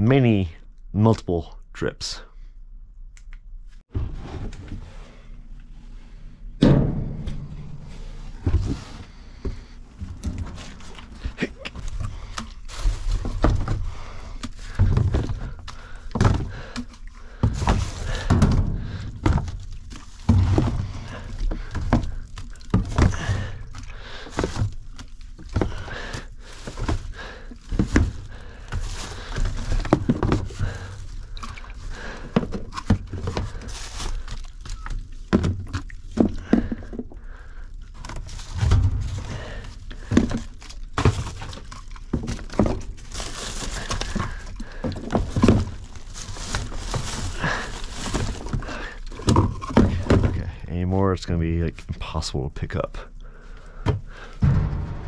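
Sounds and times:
packages thunking and knocking: 3.9s - 4.9s, 6.6s - 50.6s, 53.7s - 55.0s
rustling: 7.1s - 50.4s.

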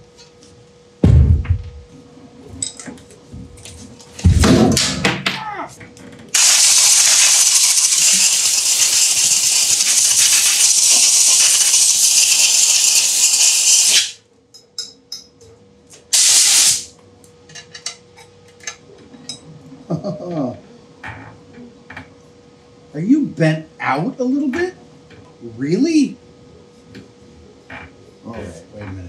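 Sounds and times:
compressed air blowgun blasting: 6.4s - 14.2s, 16.1s - 16.9s.

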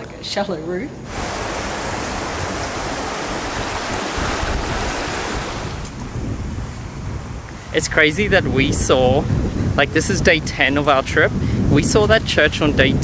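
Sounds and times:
wind buffeting microphone: 1.0s - 13.0s
stream water running over rocks: 1.1s - 6.0s.

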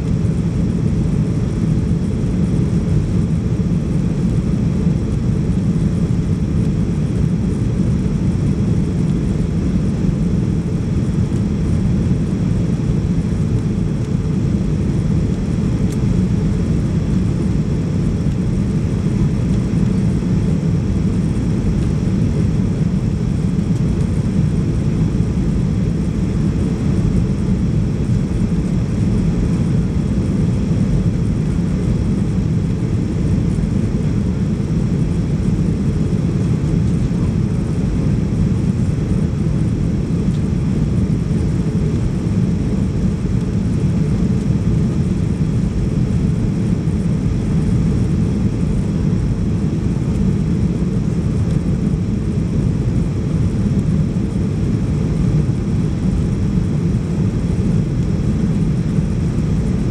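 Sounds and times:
jet engines rumbling in cabin: 0.0s - 59.9s.

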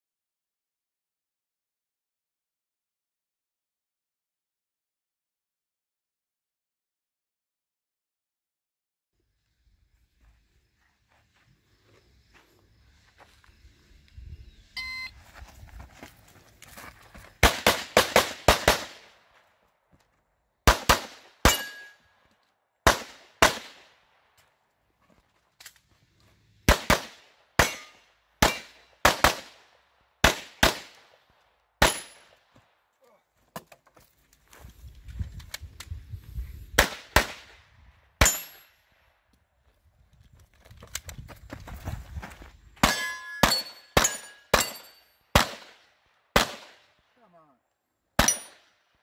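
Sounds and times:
handgun shots: 17.4s - 19.1s, 20.7s - 22.0s, 26.7s - 29.6s, 31.8s - 32.3s, 42.8s - 45.8s
steel target ringing: 21.5s - 22.1s, 27.6s - 28.6s, 42.9s - 45.1s.

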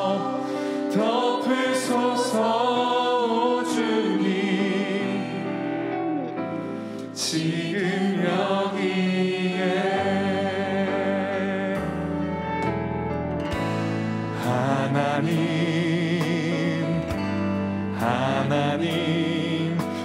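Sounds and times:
sustained singing voices: 0.0s - 12.4s, 14.0s - 20.0s
band playing slow worship music: 0.0s - 20.0s
bass notes: 11.8s - 20.0s.

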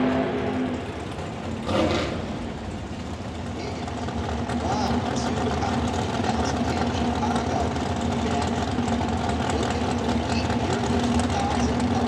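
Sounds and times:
dragster engines idling: 0.0s - 12.0s.

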